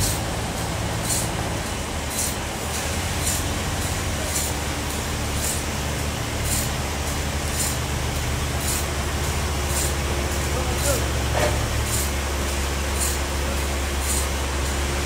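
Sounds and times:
engine running with low hum: 0.0 - 15.0
short high hiss: 1.0 - 1.5, 12.9 - 14.5.

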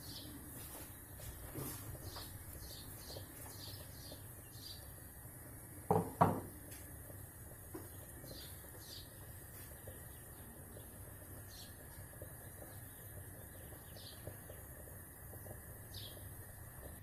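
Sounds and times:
bird chirping: 2.0 - 5.0, 7.8 - 14.7, 15.9 - 16.3
china plate knocking on worktop: 5.9 - 6.5.

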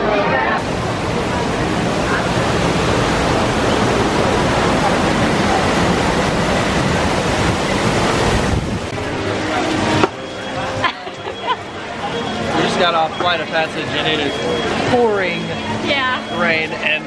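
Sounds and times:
waterfall splashing over rocks: 0.6 - 10.1.

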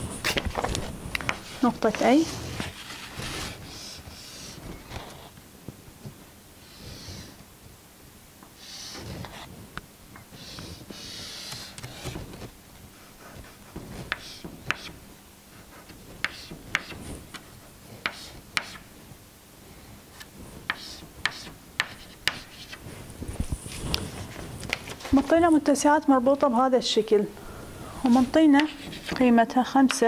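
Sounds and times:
chalk scraping on chalkboard: 10.4 - 12.1, 13.0 - 15.0, 15.6 - 17.4, 18.0 - 18.8, 20.7 - 22.9, 28.1 - 29.3
chalk tapping on chalkboard: 13.3 - 15.0, 15.8 - 17.4, 18.0 - 18.9, 20.6 - 22.8, 28.5 - 29.2.

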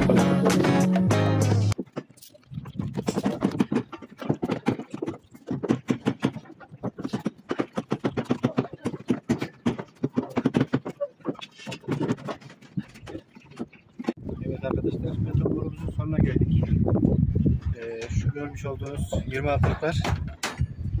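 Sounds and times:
plastic conduit clacking on metal bars: 3.0 - 14.2.

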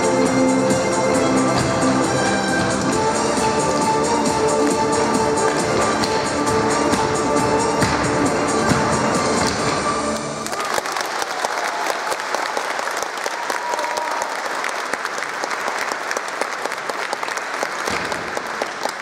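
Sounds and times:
music: 0.0 - 10.6
audience applause: 9.5 - 19.0.

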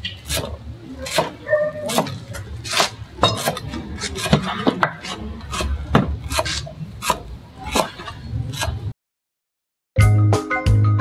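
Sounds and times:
knife chopping on wooden board: 0.2 - 8.8.

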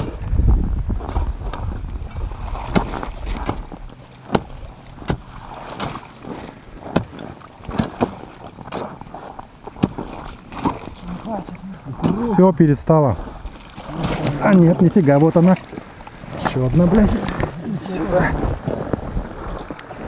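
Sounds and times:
low rumble: 0.0 - 3.9
water and ice slush stirring: 1.0 - 20.0.

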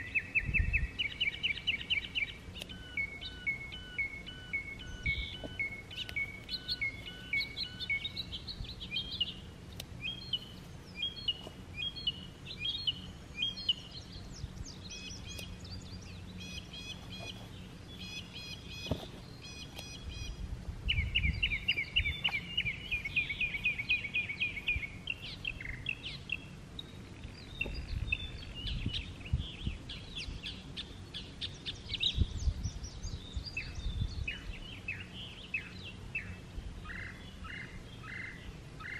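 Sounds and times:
bird trilling: 0.0 - 29.3
songbirds chirping and whistling: 0.0 - 38.9.

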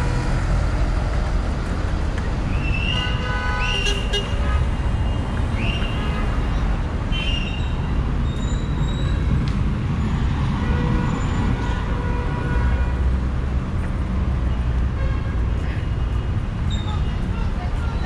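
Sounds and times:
car and bus engines passing: 0.0 - 18.0.

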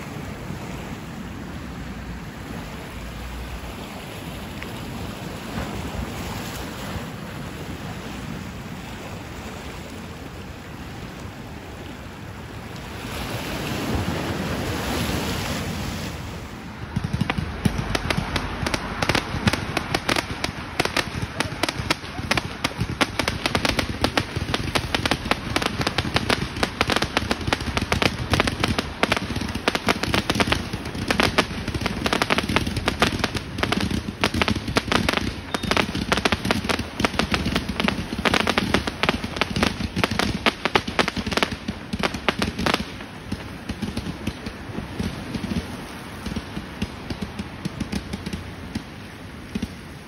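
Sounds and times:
fireworks bangs and crackles: 13.7 - 50.0.

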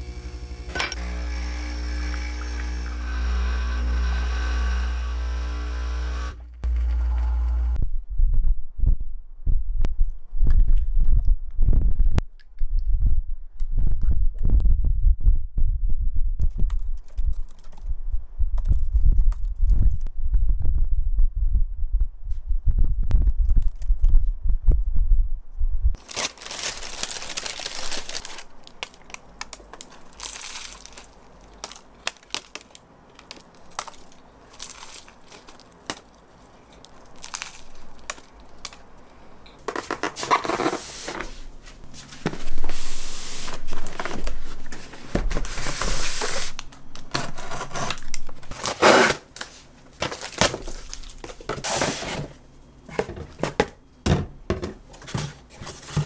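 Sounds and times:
packing tearing: 26.0 - 39.1, 43.4 - 52.1
paper crinkling: 26.0 - 52.3.

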